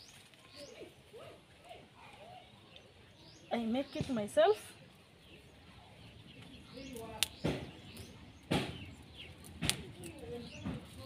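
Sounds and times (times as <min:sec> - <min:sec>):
birds chirping: 0:00.0 - 0:11.0
twig cracking: 0:06.4 - 0:11.0.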